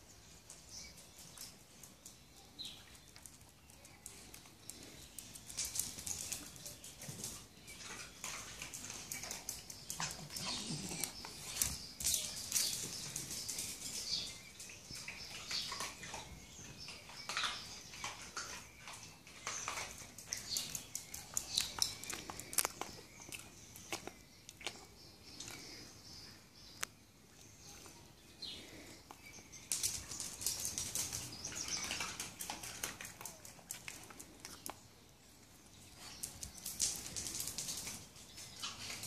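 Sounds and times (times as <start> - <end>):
dog claws clicking on tiles: 2.9 - 25.7, 29.6 - 34.8, 36.0 - 39.0.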